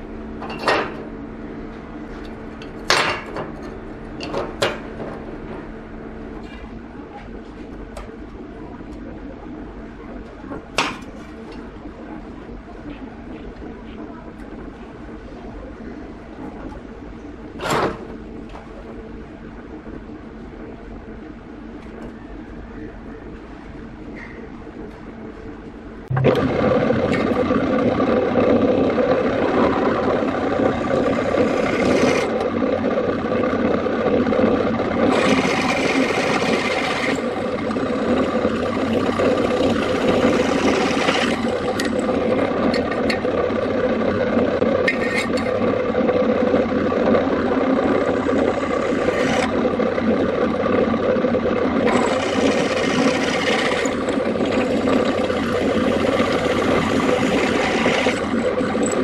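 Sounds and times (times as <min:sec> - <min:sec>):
power tool rasping and scraping: 0:29.9 - 0:32.5, 0:35.0 - 0:43.2, 0:44.9 - 0:45.6, 0:47.8 - 0:49.6, 0:51.8 - 0:59.0.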